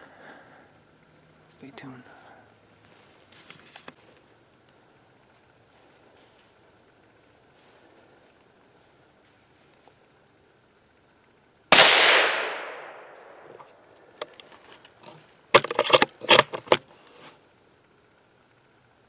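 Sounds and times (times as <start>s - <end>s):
clatters and rustles: 2.8s - 4.6s, 13.5s - 17.4s
gunshot with echo: 11.7s - 13.4s.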